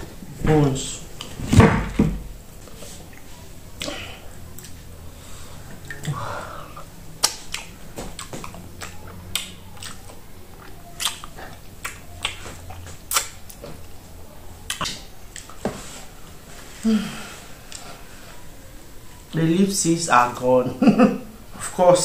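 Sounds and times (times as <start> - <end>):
sucking and licking fingers: 7.2 - 13.6
mouth smacking while chewing: 7.2 - 14.0, 14.6 - 15.6.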